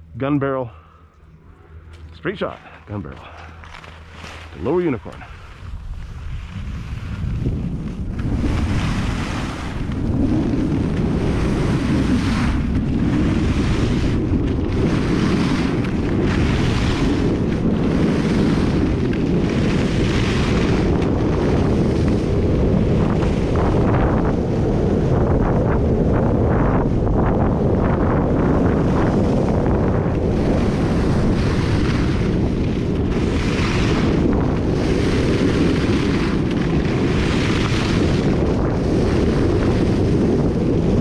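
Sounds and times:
wind buffeting microphone: 0:00.0 - 0:41.0
ski edges hissing on snow: 0:03.4 - 0:07.4.

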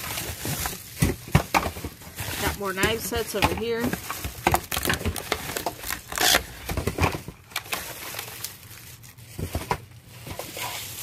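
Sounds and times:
packaging rustling and scraping: 0:00.0 - 0:11.0.

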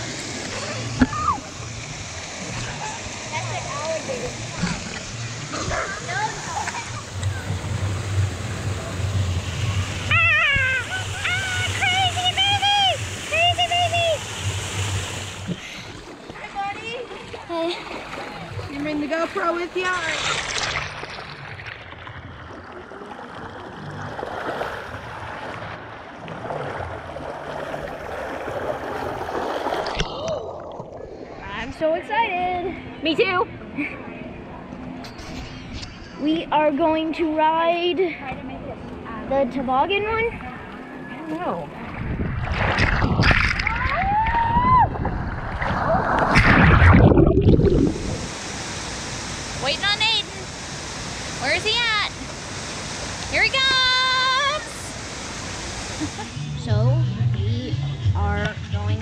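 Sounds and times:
water rushing down slide: 0:00.0 - 0:21.6, 0:42.0 - 0:56.4
person whooping: 0:10.1 - 0:11.9, 0:43.7 - 0:45.0.

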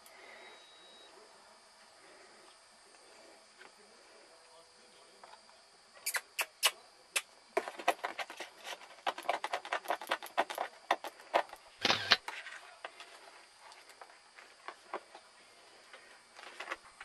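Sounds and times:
kittens' claws scratching plastic: 0:07.6 - 0:12.6.

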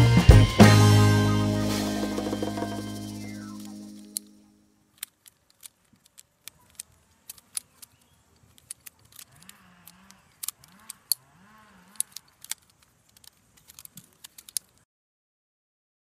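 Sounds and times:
wooden butterfly knife clicking: 0:02.2 - 0:11.2, 0:11.8 - 0:14.8.

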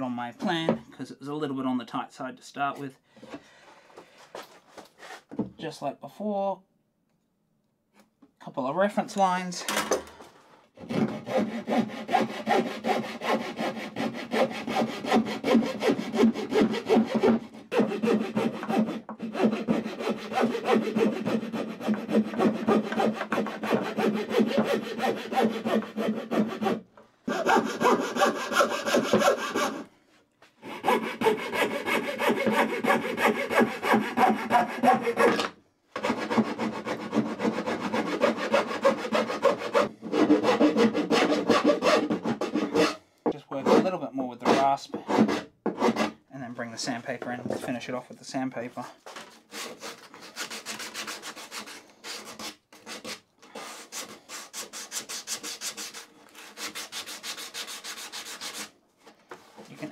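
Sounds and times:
hand saw cutting wood: 0:10.8 - 0:29.9, 0:30.6 - 0:46.2, 0:49.0 - 0:58.7.

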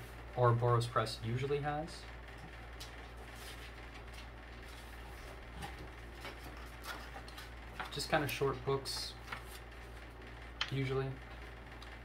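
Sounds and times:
book pages rustling: 0:02.8 - 0:10.8.

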